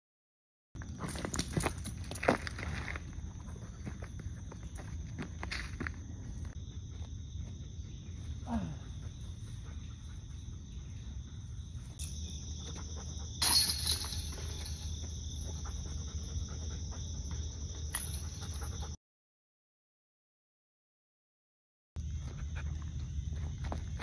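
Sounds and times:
insects chorus: 0.8 - 19.0, 22.0 - 24.0
disc hitting metal chains: 13.4 - 15.0
small chain rattle: 13.4 - 15.6, 17.8 - 18.8.

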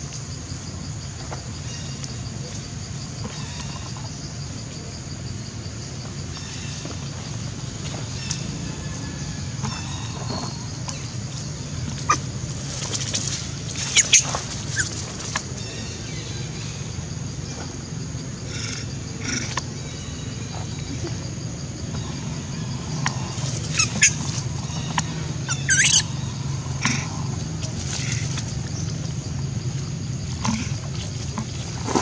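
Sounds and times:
steady low hum: 0.0 - 32.0
monkeys squealing and screeching: 25.5 - 26.2.

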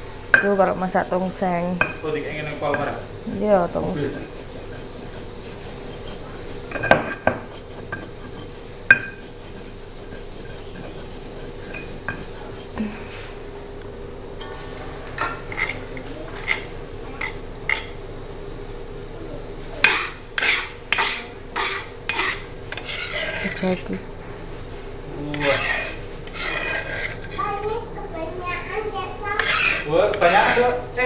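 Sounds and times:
steady low hum: 0.0 - 31.0
metal spatula clanking and scraping: 1.8 - 12.7, 25.3 - 27.5, 29.4 - 30.8.

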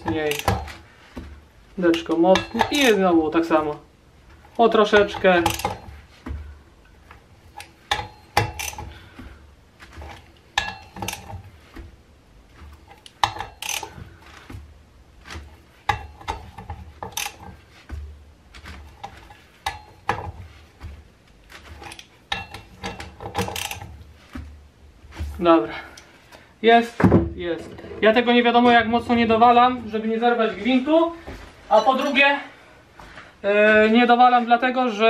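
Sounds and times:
ratchet wrench clicking: 7.6 - 8.8, 13.3 - 14.0, 17.1 - 17.4, 23.4 - 23.8.

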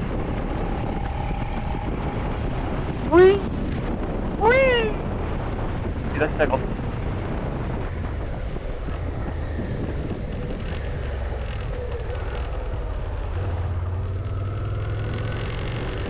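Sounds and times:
wind rush: 0.0 - 16.0
motorcycle engine running: 6.7 - 16.0.

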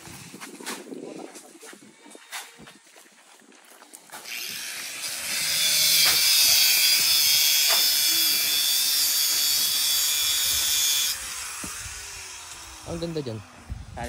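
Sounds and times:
power tool grinding whine: 4.2 - 14.0.

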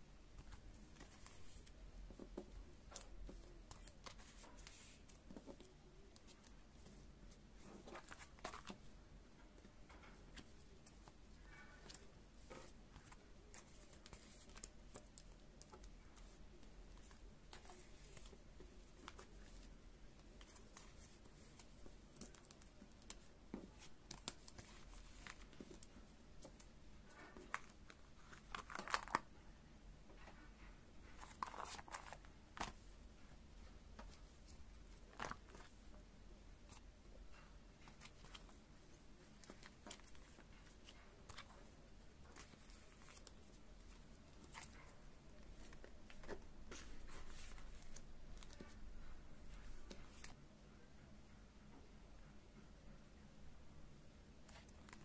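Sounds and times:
plastic sheets rustling and crinkling: 30.6 - 32.9.

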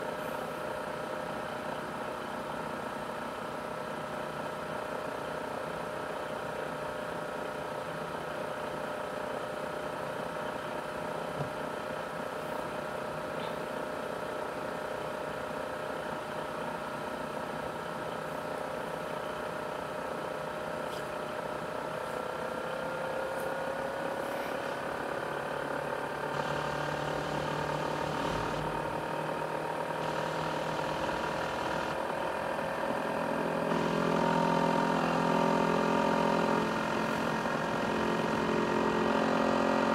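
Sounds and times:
laptop cooling fan whine: 17.9 - 39.9.

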